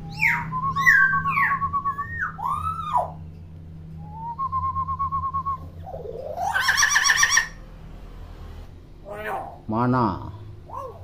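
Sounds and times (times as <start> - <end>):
myna calling: 5.8 - 7.6, 9.0 - 9.7.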